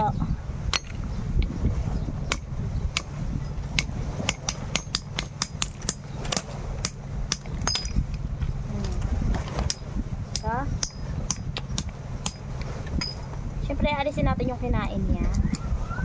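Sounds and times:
low steady rumble: 0.0 - 16.0
hammer knocking on snail shells: 3.8 - 6.0.

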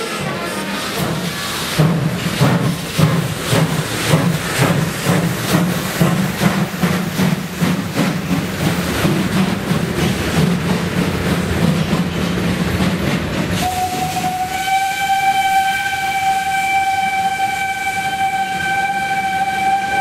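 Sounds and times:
steam locomotive hissing and rumbling: 0.0 - 20.0
steam whistle: 13.6 - 20.0.

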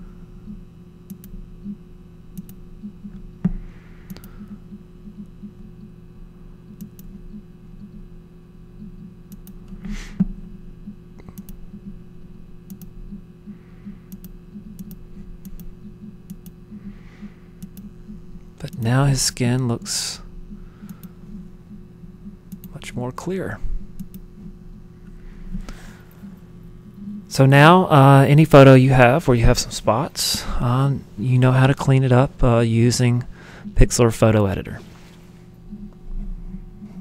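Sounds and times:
low hum: 0.0 - 37.0
computer mouse clicking: 1.1 - 3.2, 4.0 - 4.6, 6.7 - 7.2, 9.3 - 10.3, 11.2 - 11.9, 12.6 - 13.2, 14.1 - 16.6, 17.6 - 17.9, 20.8 - 21.2, 22.5 - 22.7, 24.0 - 24.3.

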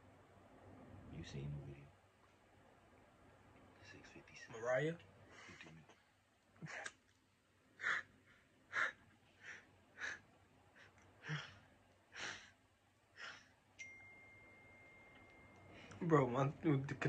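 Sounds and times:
thin steady high tone: 13.8 - 17.0.

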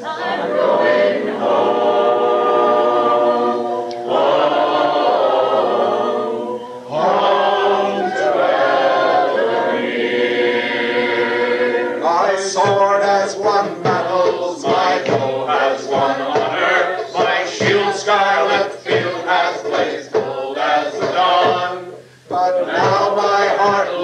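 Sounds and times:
choir singing a cappella: 0.0 - 24.0
singers breathing: 6.6 - 6.9, 21.9 - 22.3.

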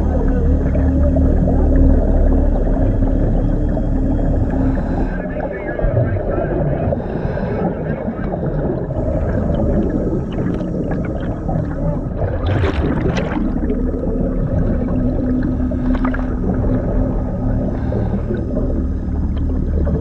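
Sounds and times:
exhaust bubbles gurgling: 0.0 - 20.0
diver breathing underwater: 4.3 - 5.3, 6.8 - 11.6, 12.8 - 19.3
distorted radio voices: 4.8 - 8.6.

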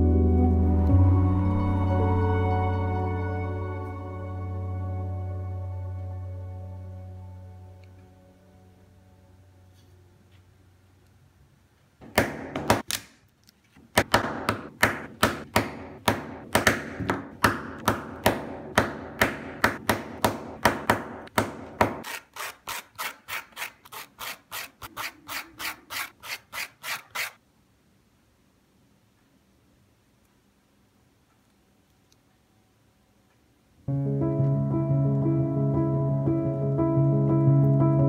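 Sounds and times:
hand sanding strokes: 22.0 - 27.4.

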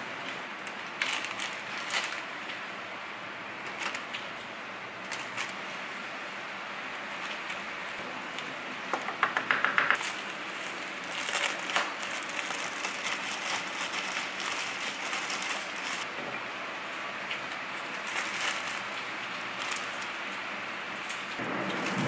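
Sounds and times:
plastic bag crinkling: 0.3 - 2.7, 10.0 - 16.1, 17.7 - 20.2.

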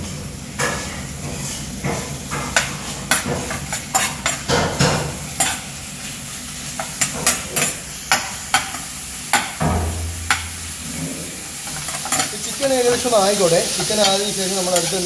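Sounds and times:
chicken sizzling in frying pan: 0.0 - 15.0
metal spoon scraping pan: 2.5 - 5.6.

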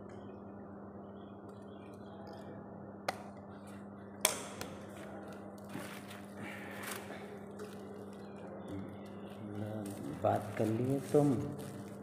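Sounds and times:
steady low hum: 0.0 - 12.0
plastic mat rustling: 4.9 - 12.0.

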